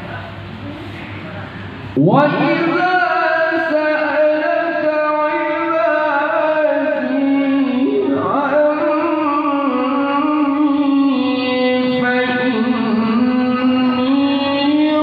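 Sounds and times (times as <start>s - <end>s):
man chanting through loudspeaker: 1.9s - 15.0s.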